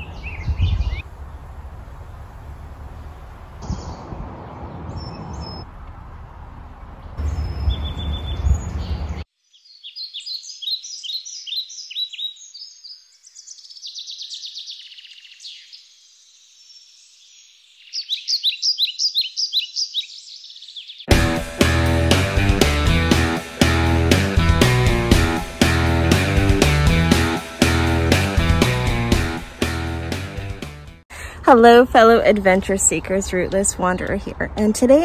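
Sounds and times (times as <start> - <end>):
birds chirping: 0.0 - 1.6, 2.5 - 30.5, 32.2 - 34.9
low steady rushing noise: 1.0 - 4.7
music: 21.1 - 31.0.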